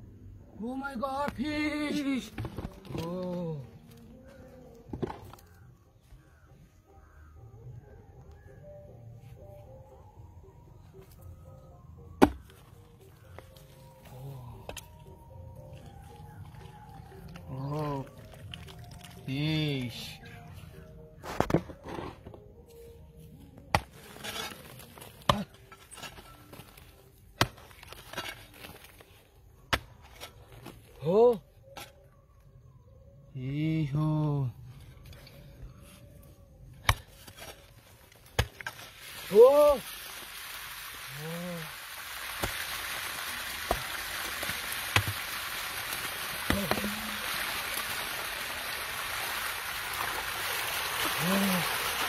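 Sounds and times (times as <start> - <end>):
sand and clay scraped away: 23.8 - 26.6.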